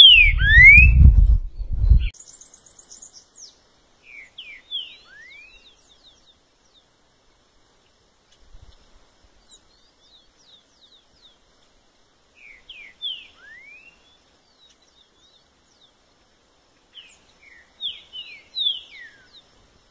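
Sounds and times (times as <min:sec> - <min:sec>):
bird whistled song phrases: 0:00.0 - 0:01.1, 0:02.0 - 0:05.9, 0:12.4 - 0:14.2, 0:16.9 - 0:19.4.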